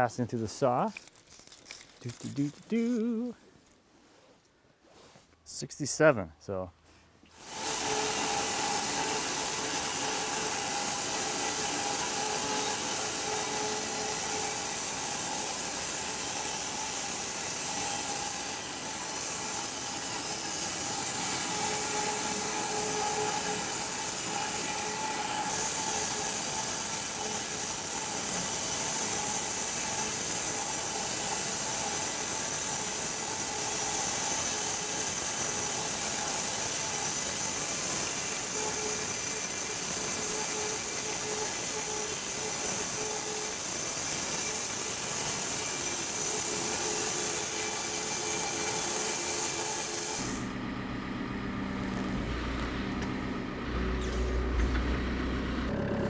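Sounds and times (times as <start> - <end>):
saw blade hissing through wood: 7.4 - 50.5
saw head humming: 7.4 - 50.5.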